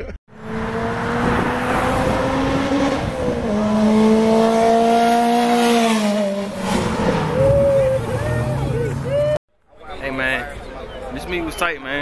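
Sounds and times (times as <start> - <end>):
car engine at full throttle: 0.3 - 9.4.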